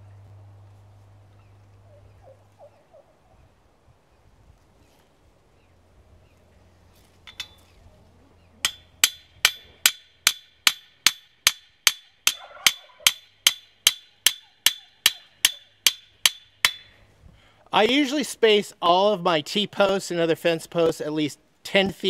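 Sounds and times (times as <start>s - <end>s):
hammer striking nail: 8.6s - 12.4s, 13.0s - 16.9s.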